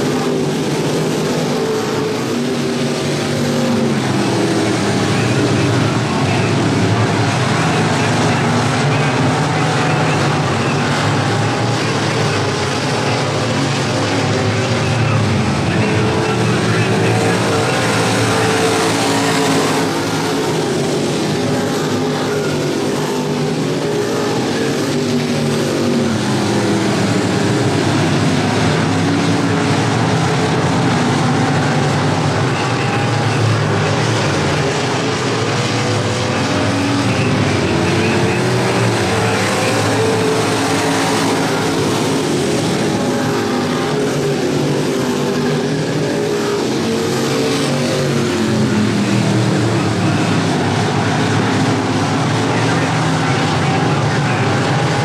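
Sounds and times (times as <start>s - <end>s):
race car engines revving: 0.0s - 55.0s.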